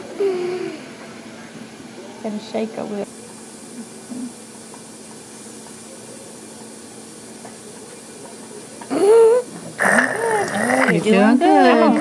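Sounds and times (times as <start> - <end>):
faint hum: 0.0 - 12.0
room noise hiss: 0.0 - 12.0.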